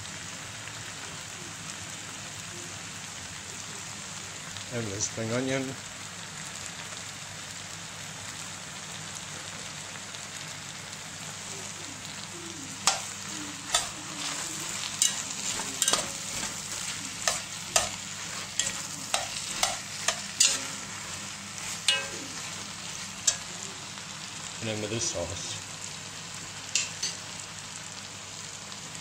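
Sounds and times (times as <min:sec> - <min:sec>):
food sizzling in a pot: 0:00.0 - 0:29.0
metal spoon clinking against pot: 0:12.8 - 0:13.1, 0:13.7 - 0:14.0, 0:14.9 - 0:20.9, 0:21.8 - 0:22.5, 0:23.2 - 0:23.5, 0:26.8 - 0:27.2.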